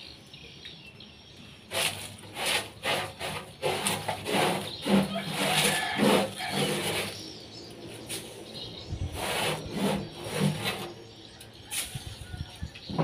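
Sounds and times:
hands rustling through compost: 0:01.7 - 0:11.0.

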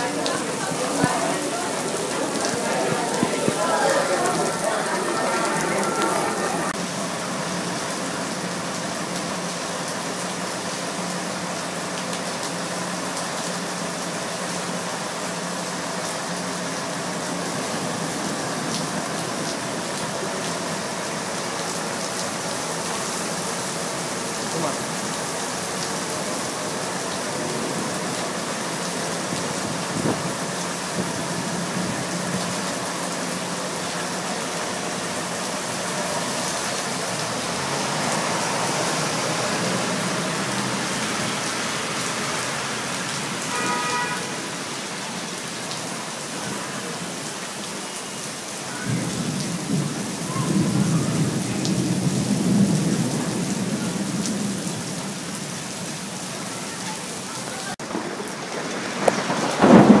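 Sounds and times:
heavy rain on street: 0:00.0 - 1:00.0
low rumble of thunder: 0:57.9 - 1:00.0.

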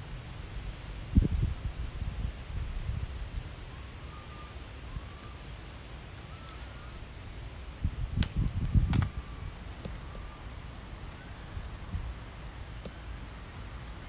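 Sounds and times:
faint high-pitched hum: 0:00.0 - 0:14.0
wind rumbling on microphone: 0:00.0 - 0:14.0
sharp clicks: 0:08.2 - 0:09.2.

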